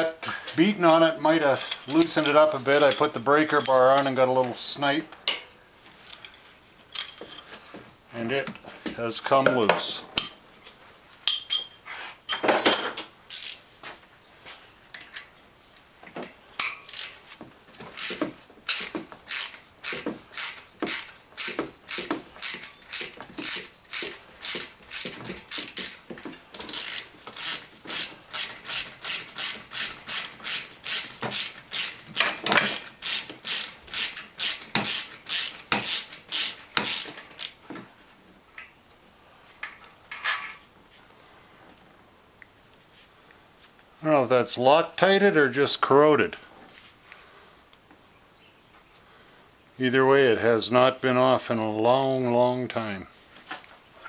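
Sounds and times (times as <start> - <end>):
socket ratchet clicking: 18.0 - 26.0, 26.6 - 37.6.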